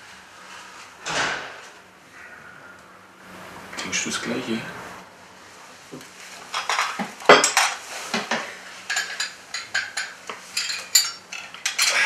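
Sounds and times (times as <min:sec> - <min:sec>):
china cups and spoons clinking: 0:08.9 - 0:12.0.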